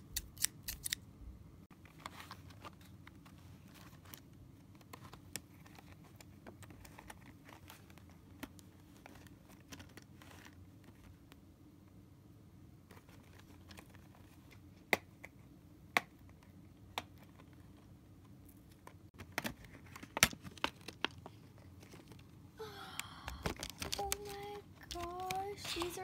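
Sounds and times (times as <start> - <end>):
plastic crinkling: 23.1 - 26.0.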